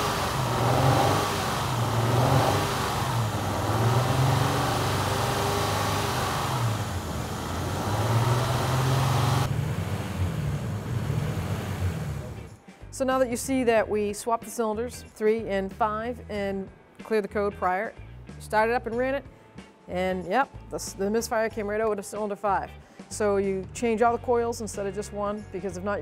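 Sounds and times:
engine running with misfire: 0:00.0 - 0:12.6.

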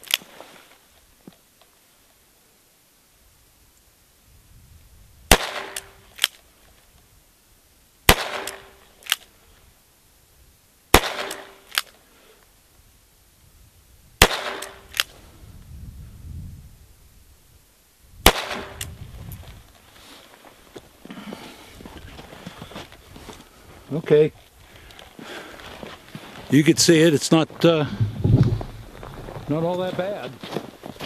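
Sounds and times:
revolver gunshots: 0:05.3 - 0:06.3, 0:08.1 - 0:08.8, 0:10.9 - 0:11.8, 0:14.2 - 0:15.1, 0:18.2 - 0:18.9.

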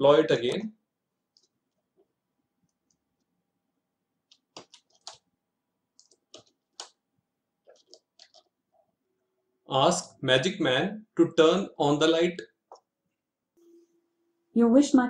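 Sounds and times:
keyboard and mouse clicks: 0:04.3 - 0:05.3, 0:05.9 - 0:07.0, 0:07.6 - 0:08.6.

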